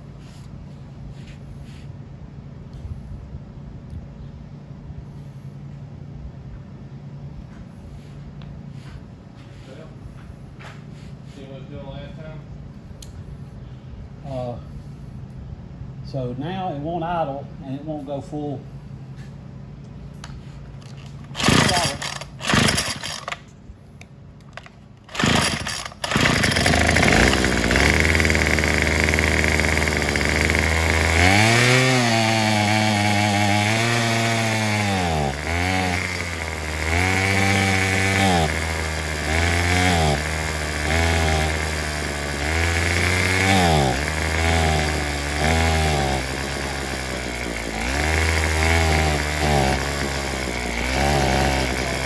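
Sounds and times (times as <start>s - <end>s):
string trimmer engine revving: 20.8s - 23.4s, 25.0s - 52.0s.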